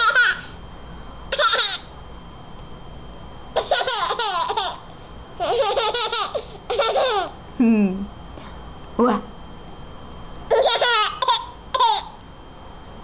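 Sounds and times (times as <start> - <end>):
baby giggling: 0.0 - 0.5, 1.3 - 1.8, 3.6 - 4.8, 5.4 - 7.4, 10.5 - 12.1.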